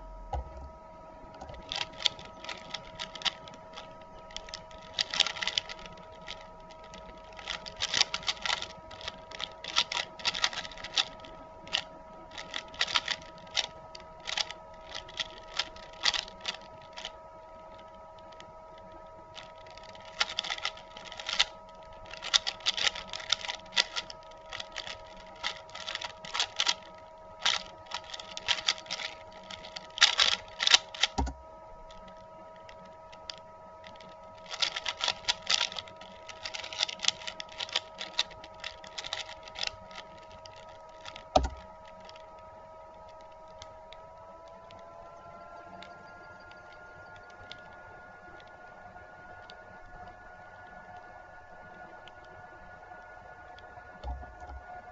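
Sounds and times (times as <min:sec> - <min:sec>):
low thud: 0:00.0 - 0:00.8, 0:54.0 - 0:54.7
puzzle cube plastic clicking: 0:01.4 - 0:54.9.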